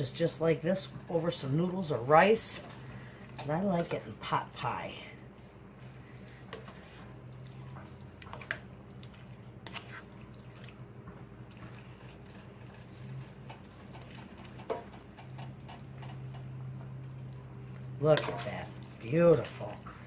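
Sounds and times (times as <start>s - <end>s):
spatula stirring thick filling: 0.0s - 20.0s
steady low hum: 0.0s - 20.0s
spatula scraping and tapping skillet: 5.7s - 10.2s, 11.1s - 18.6s.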